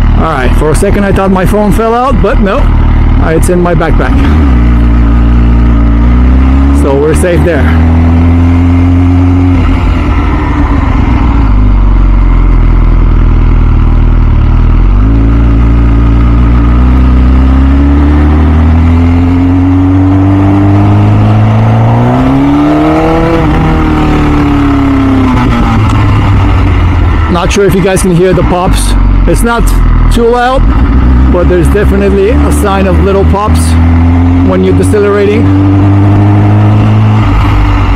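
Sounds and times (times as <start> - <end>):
motorcycle engine revving: 0.0 - 37.9.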